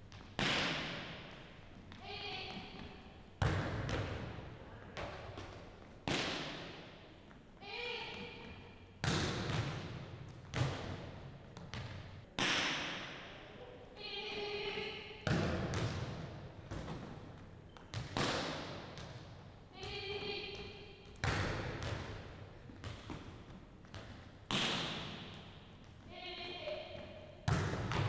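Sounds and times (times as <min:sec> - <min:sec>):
volleyball smacks echoing: 0:00.2 - 0:01.3, 0:05.0 - 0:06.8, 0:08.2 - 0:11.0, 0:11.6 - 0:13.4, 0:15.2 - 0:17.2, 0:17.9 - 0:19.3, 0:20.5 - 0:25.6, 0:27.0 - 0:28.0.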